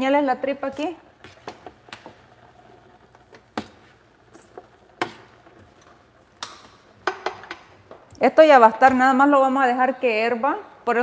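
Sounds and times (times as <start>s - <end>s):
kitchen utensils clicking and knocking: 6.4s - 7.7s.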